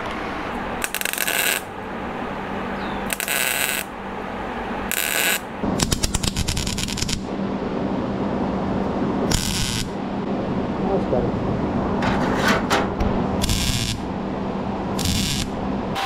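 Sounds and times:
welder crackling hiss: 0.8 - 1.7, 3.1 - 3.9, 4.9 - 7.2, 13.4 - 14.0, 15.0 - 15.5.

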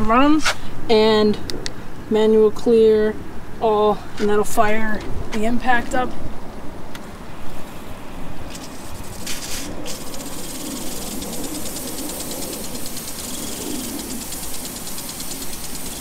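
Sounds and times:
spraying water hiss: 8.6 - 16.0
sprinkler impact arm ticking: 8.8 - 16.0.

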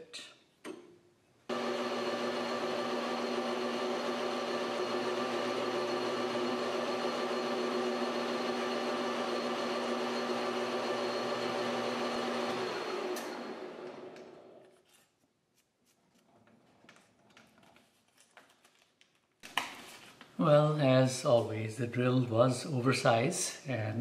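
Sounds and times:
metal lathe motor whine: 1.5 - 14.6.

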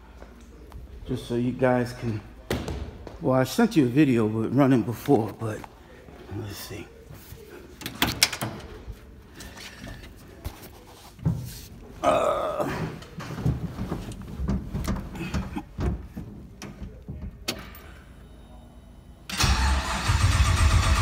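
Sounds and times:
knocks and shuffling in seat: 8.7 - 17.5.

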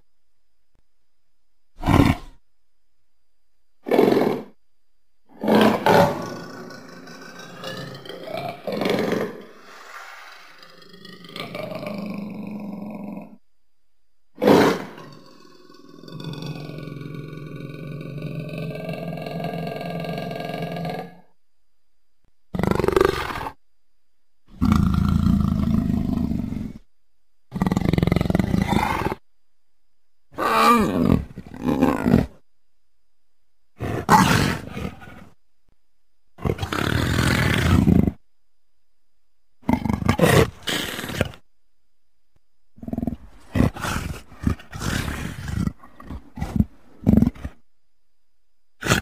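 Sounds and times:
leopard growling: 1.8 - 2.4, 5.3 - 13.4, 22.5 - 23.6, 27.5 - 29.2, 33.8 - 35.4, 36.4 - 38.2, 39.6 - 41.4, 42.8 - 47.6, 48.8 - 49.0
leopard grunting calls: 42.8 - 47.6.

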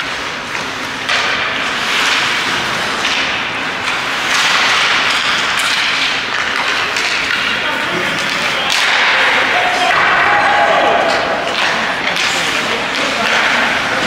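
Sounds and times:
skate blades scraping ice: 0.0 - 8.9
hockey sticks and puck clacking: 0.0 - 14.0.

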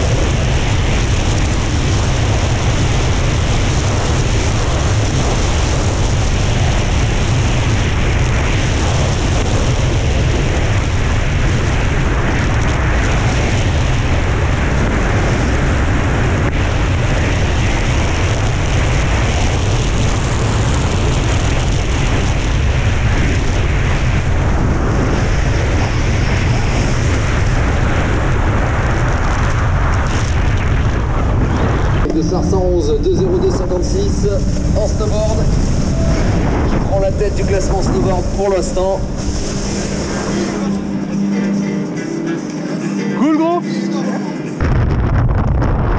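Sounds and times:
wind buffeting microphone: 0.0 - 42.4, 44.6 - 45.9
snowboard scraping hard snow: 34.3 - 41.8.

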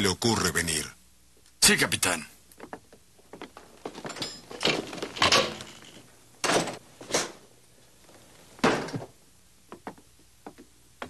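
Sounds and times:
footsteps: 2.6 - 7.1
wooden door opening and shutting: 3.8 - 7.4.

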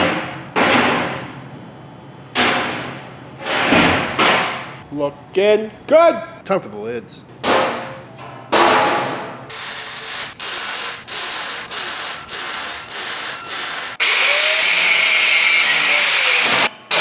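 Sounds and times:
arc welder crackling: 9.5 - 17.0
angle grinder whining: 10.6 - 17.0.

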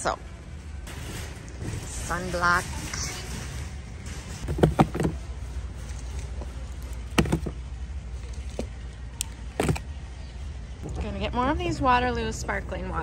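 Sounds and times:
plastic bottles knocking and clunking: 4.4 - 5.2, 7.1 - 7.7, 9.6 - 9.8.

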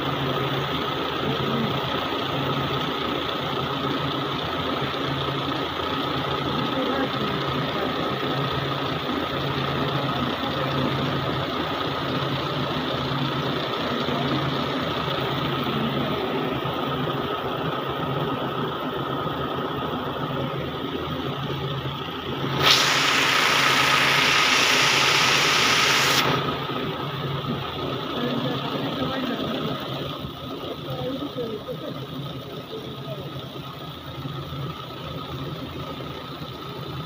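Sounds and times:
loud hiss: 22.4 - 27.0.

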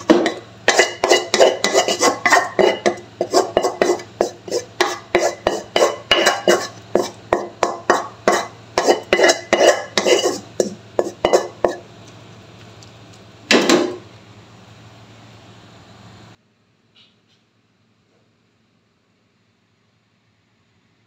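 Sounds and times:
spatula scraping a wok: 0.0 - 11.9.

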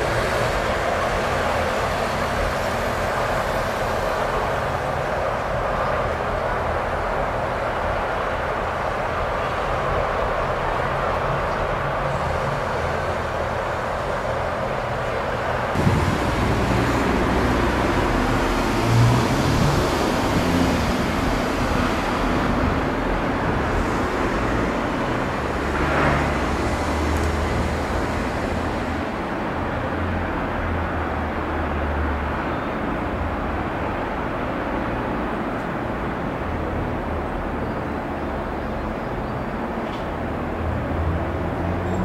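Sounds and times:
road traffic hiss and rumble: 0.0 - 42.0.

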